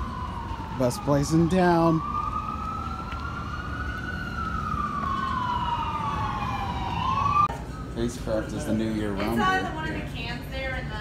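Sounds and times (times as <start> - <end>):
emergency siren wailing: 0.0 - 8.5
street traffic rumble: 0.0 - 11.0.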